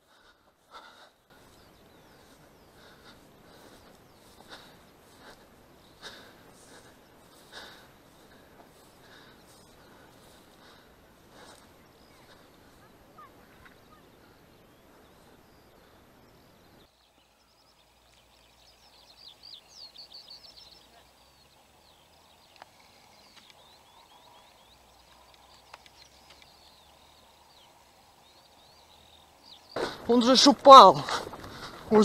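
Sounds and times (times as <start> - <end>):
songbirds chirping: 0.0 - 32.0
faint clicks: 22.5 - 23.7, 25.0 - 26.6.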